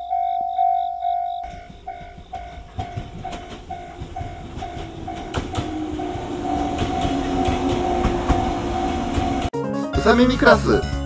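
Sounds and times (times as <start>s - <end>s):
level crossing bell ringing: 0.0s - 9.5s
train wheels clacking over rail joints: 1.4s - 9.5s.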